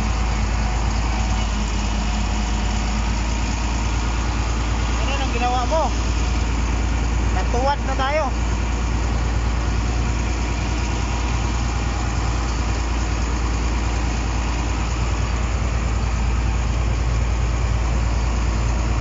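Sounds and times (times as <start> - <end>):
bulldozer diesel engine running: 0.0 - 19.0.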